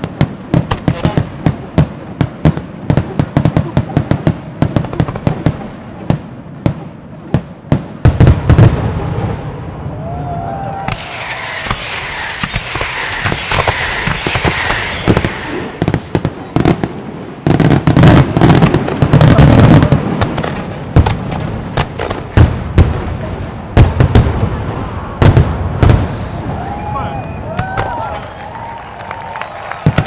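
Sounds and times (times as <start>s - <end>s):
firework bangs: 0.0s - 30.0s
firework fountains hissing: 8.7s - 22.4s, 24.4s - 30.0s.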